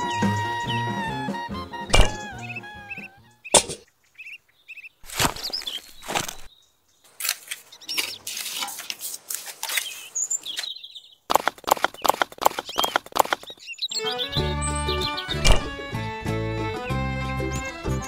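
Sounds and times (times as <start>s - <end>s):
small birds chirping: 0.0s - 18.0s
trowel scraping wet mortar: 7.2s - 10.1s.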